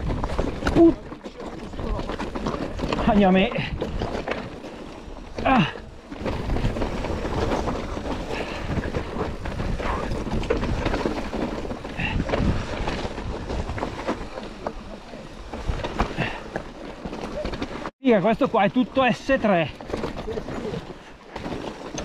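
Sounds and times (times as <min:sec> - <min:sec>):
mountain bike rattling on rocky trail: 0:00.0 - 0:22.0
wind buffeting microphone: 0:05.2 - 0:16.4
person exclaiming: 0:05.4 - 0:05.8.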